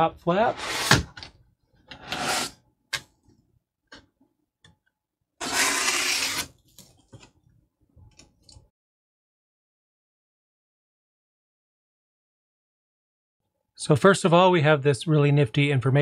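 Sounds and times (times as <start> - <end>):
cardboard scraping: 2.0 - 2.6, 5.4 - 6.6.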